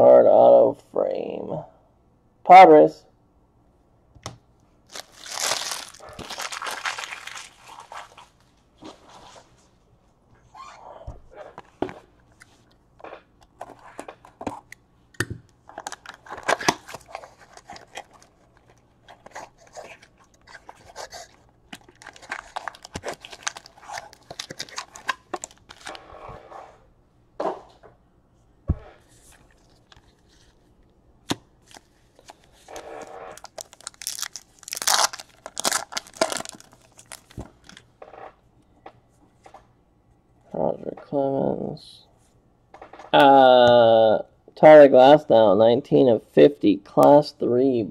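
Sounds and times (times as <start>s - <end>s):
plastic tearing and crinkling: 4.9s - 8.4s, 15.7s - 26.1s, 31.6s - 38.2s.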